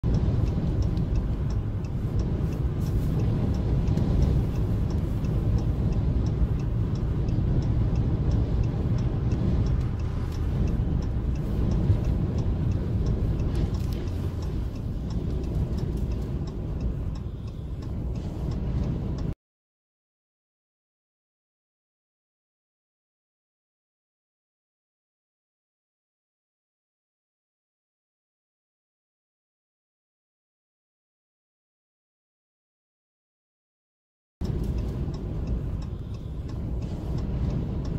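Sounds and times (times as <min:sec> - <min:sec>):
highway driving rumble: 0:00.0 - 0:19.4, 0:34.4 - 0:37.9
light ticking: 0:00.0 - 0:19.4, 0:34.4 - 0:37.9
road noise: 0:00.0 - 0:19.4, 0:34.4 - 0:37.9
wind noise: 0:00.0 - 0:19.4, 0:34.4 - 0:37.9.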